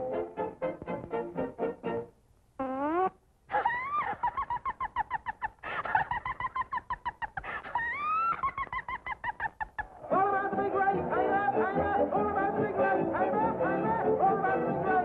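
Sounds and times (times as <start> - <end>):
cartoon cackling: 2.6 - 10.0.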